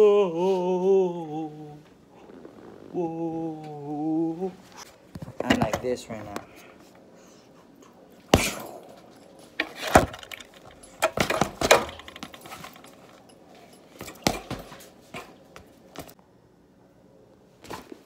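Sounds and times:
punches thudding on heavy bag: 0:08.3 - 0:08.7, 0:14.0 - 0:15.3
chain jangling: 0:11.9 - 0:14.9.

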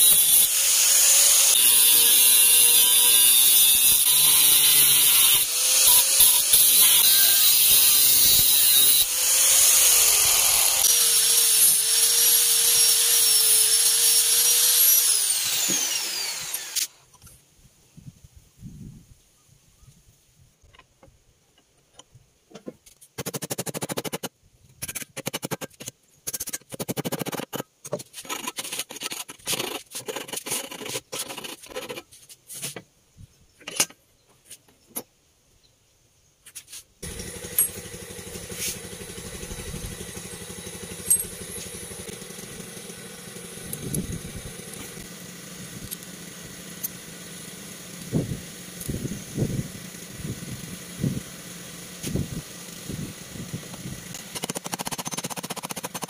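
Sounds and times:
motor hum: 0:37.0 - 0:54.4.

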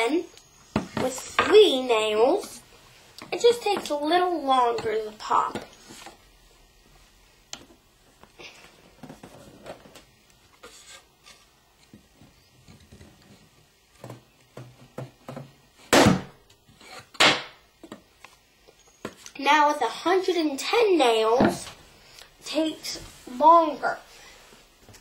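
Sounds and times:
balloon bursting bang: 0:15.9 - 0:16.4.

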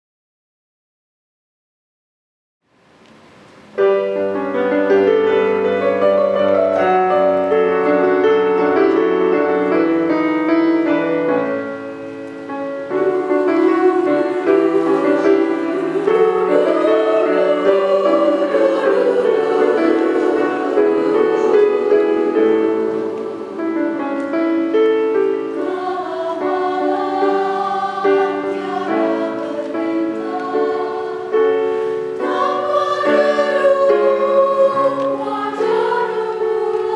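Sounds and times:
women's choir singing: 0:04.5 - 0:11.8, 0:12.8 - 0:36.9.

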